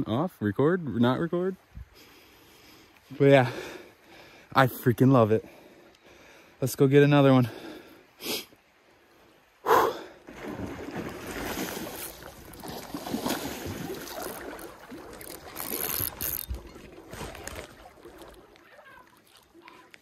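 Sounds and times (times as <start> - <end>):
water sloshing and splashing: 8.8 - 20.0.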